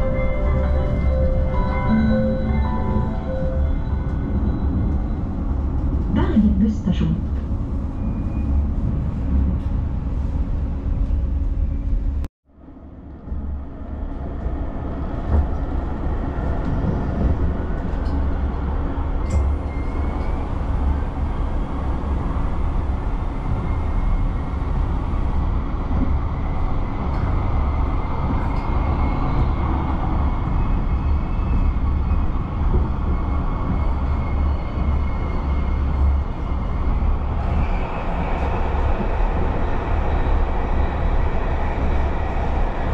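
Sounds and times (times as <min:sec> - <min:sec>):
tram rumbling along track: 0:00.0 - 0:42.9
tram stop ambience: 0:00.0 - 0:42.9.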